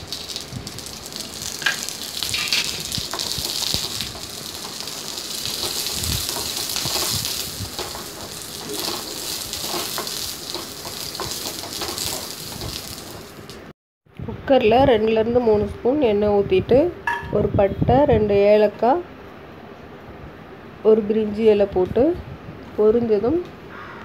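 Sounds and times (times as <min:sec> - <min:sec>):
food sizzling in hot oil: 0:00.0 - 0:13.7
wooden spatula scraping pan: 0:05.5 - 0:13.2.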